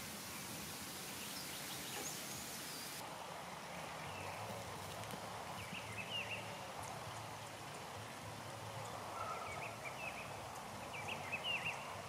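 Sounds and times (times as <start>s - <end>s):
wild birds chirping: 0.0s - 3.0s, 5.5s - 7.9s, 8.6s - 12.0s
faint outdoor background noise: 0.0s - 12.0s.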